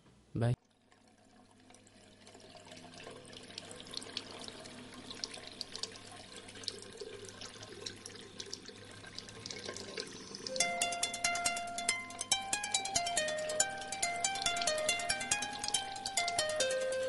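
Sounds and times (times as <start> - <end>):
tap running into basin: 0.7 - 11.8.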